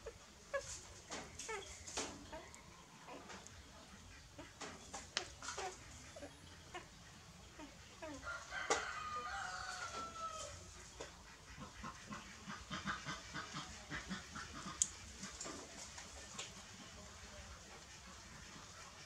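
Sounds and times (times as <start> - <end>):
rooster crowing: 8.2 - 10.6.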